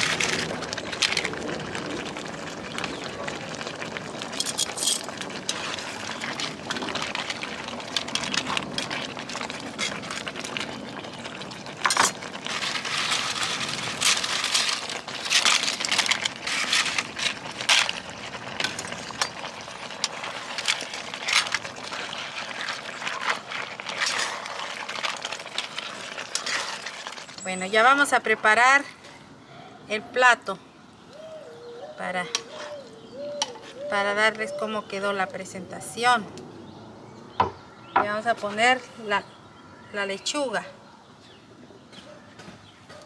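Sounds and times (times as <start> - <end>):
salsa boiling and bubbling: 0.0 - 31.2, 31.9 - 39.6
metal tongs scraping in pan: 4.4 - 6.4, 18.6 - 27.4.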